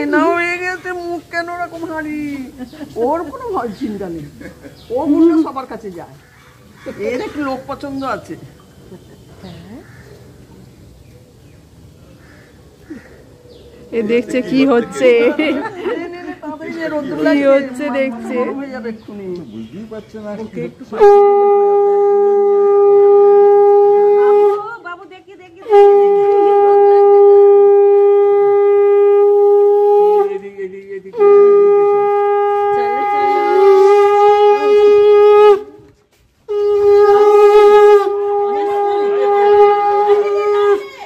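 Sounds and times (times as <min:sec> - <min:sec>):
conch shell blasts: 0:21.0 - 0:24.6, 0:25.6 - 0:30.3, 0:31.1 - 0:40.5.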